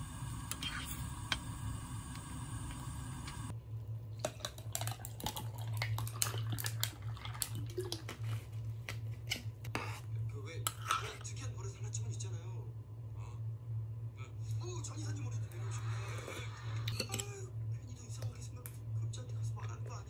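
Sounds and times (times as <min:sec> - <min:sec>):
low hum: 0:00.0 - 0:11.0
ice cubes clicking and crackling: 0:04.2 - 0:08.2
tea pouring into glass: 0:04.4 - 0:08.1
spoon stirring in earthenware pot: 0:09.2 - 0:11.3.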